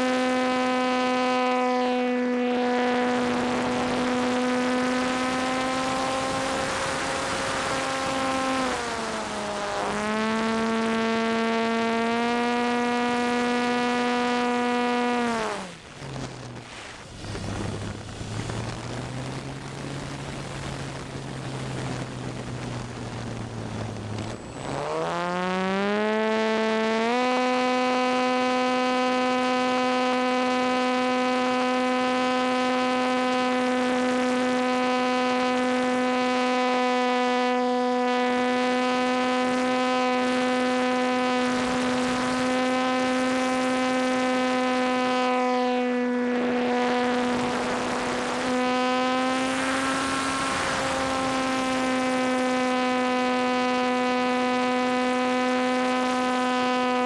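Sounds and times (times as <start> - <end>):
electric motor propeller whine: 0.0 - 57.0
wind rushing: 15.8 - 24.7.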